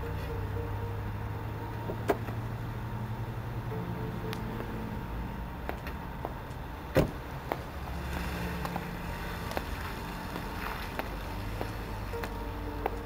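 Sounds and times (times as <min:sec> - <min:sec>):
low steady rumble: 0:00.0 - 0:13.0
car door shutting: 0:01.8 - 0:02.4, 0:06.9 - 0:07.2
footsteps on paving: 0:07.4 - 0:13.0.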